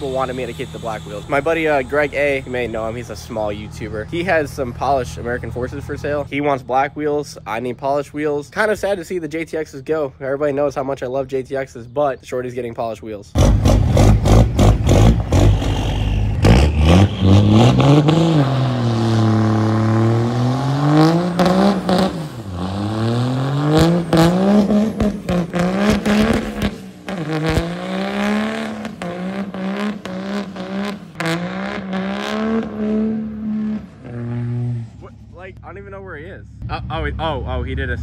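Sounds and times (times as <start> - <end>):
tires spinning on pavement: 0.0 - 6.6, 13.4 - 35.3
diesel engine revving hard: 13.4 - 35.2.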